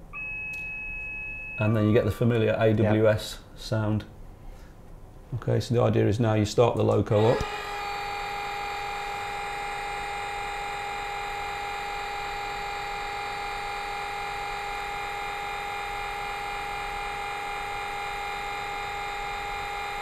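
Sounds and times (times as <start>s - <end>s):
electric pump whine: 7.0s - 20.0s.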